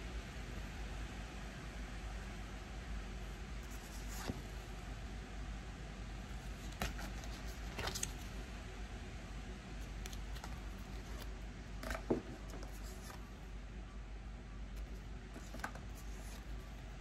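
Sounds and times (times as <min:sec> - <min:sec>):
low background noise: 0:00.0 - 0:17.0
cards clicking and rustling: 0:06.5 - 0:08.4, 0:09.8 - 0:13.3, 0:14.8 - 0:16.7.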